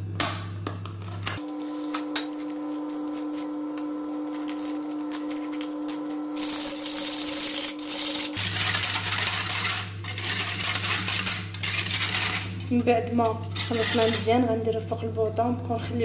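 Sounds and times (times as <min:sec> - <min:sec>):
steady low hum: 0:00.0 - 0:16.0
plastic sachet crinkling: 0:01.4 - 0:12.7
whisk scraping in pan: 0:07.4 - 0:12.6, 0:13.5 - 0:14.4.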